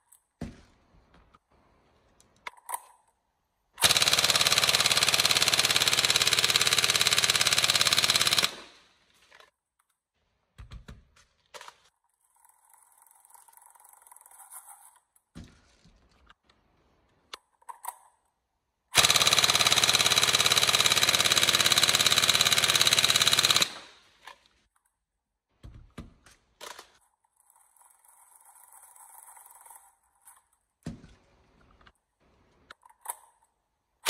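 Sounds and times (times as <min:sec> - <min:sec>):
airsoft rifle full-auto burst: 0:03.8 - 0:08.9, 0:18.9 - 0:24.1.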